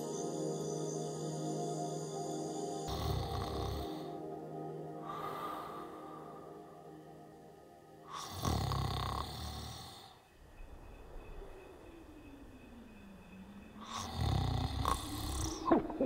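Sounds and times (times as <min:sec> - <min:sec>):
man snoring: 0:02.9 - 0:04.2, 0:08.1 - 0:10.2, 0:13.9 - 0:15.6.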